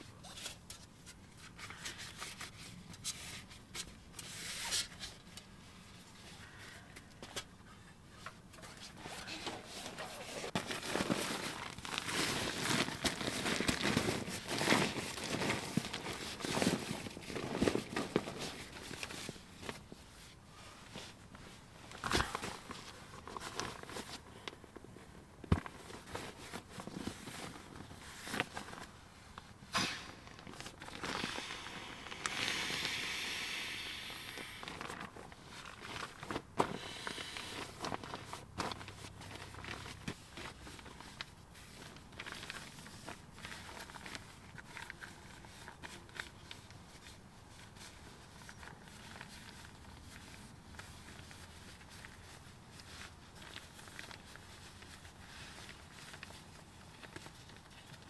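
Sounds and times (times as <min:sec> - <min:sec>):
sleeping pad rustling: 0:08.4 - 0:58.0
air hissing rush: 0:31.2 - 0:34.7.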